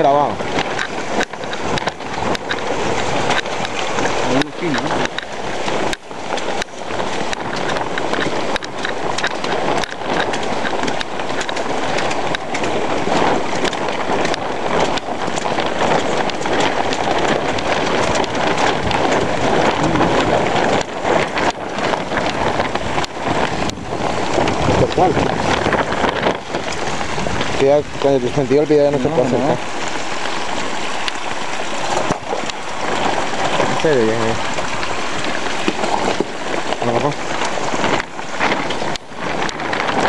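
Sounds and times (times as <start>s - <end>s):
wind buffeting microphone: 0.0s - 40.0s
heavy rain hissing: 2.7s - 7.2s, 17.2s - 40.0s.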